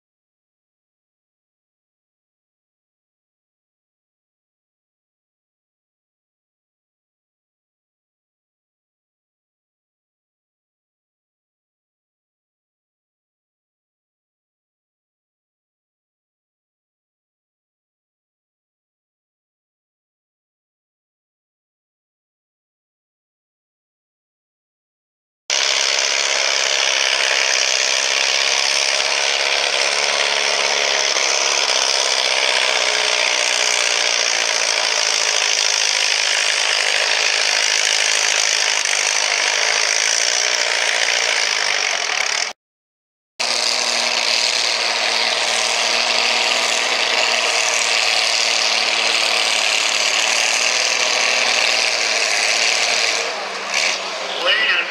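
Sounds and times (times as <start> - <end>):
tractor engines clattering roar: 25.5 - 42.6, 43.4 - 54.9.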